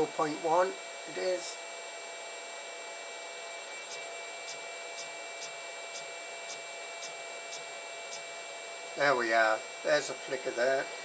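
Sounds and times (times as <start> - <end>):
faint electronic whine: 0.0 - 11.0
fan hiss: 3.8 - 8.4.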